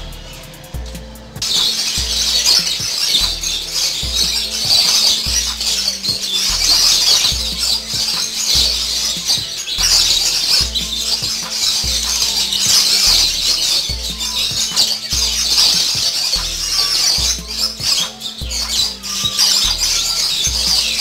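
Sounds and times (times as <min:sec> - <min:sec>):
caged birds chattering and squawking: 0:00.0 - 0:21.0
music with deep bass line: 0:00.0 - 0:21.0.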